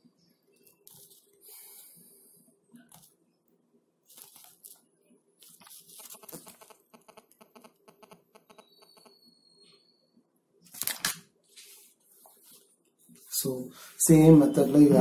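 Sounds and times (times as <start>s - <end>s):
paper pages rustling: 0.6s - 1.4s, 4.1s - 4.8s, 5.4s - 6.6s, 10.7s - 13.4s
small ticks: 6.0s - 9.1s.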